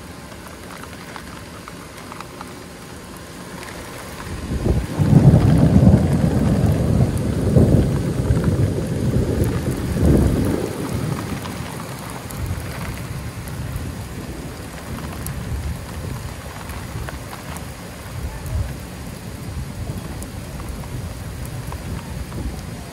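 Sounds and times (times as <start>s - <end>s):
steady rain: 0.0s - 22.9s
rolling thunder: 4.1s - 17.3s.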